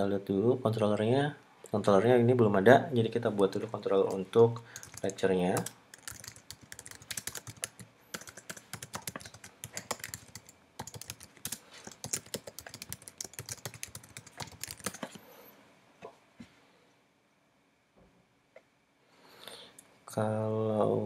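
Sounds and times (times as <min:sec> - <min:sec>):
typing on computer keyboard: 0:04.1 - 0:15.2.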